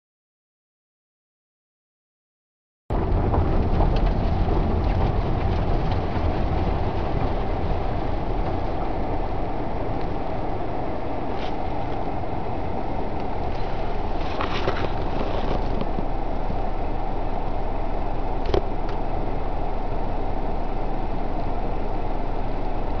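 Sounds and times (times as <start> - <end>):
car driving rumble: 2.9 - 23.0
strong wind and blowing snow: 2.9 - 23.0.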